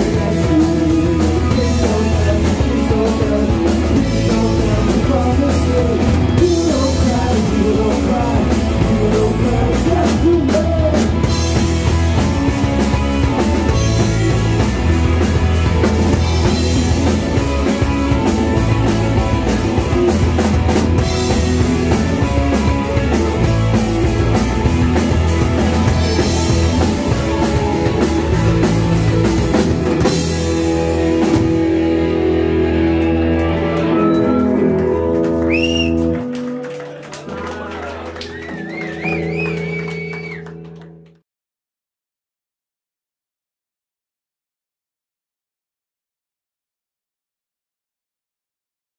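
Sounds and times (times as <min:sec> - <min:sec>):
person singing: 0:00.0 - 0:11.3
drum kit: 0:00.0 - 0:40.8
electric guitars: 0:00.0 - 0:41.2.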